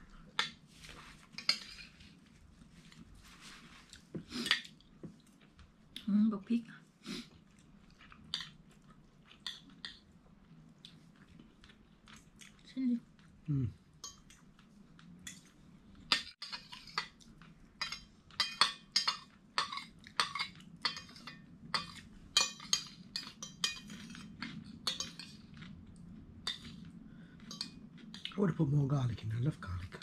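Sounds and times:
cutlery clinking on plates: 17.8 - 25.5.

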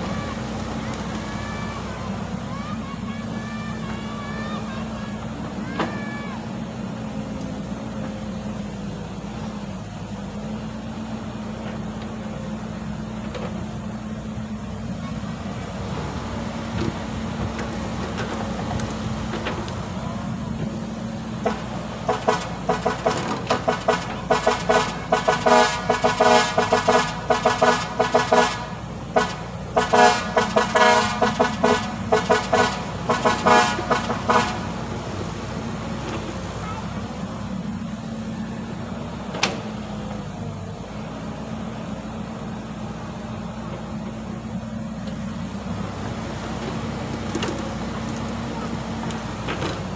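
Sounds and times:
excavator diesel engine running: 0.0 - 49.9
horn-like tone blasts: 21.4 - 35.3.

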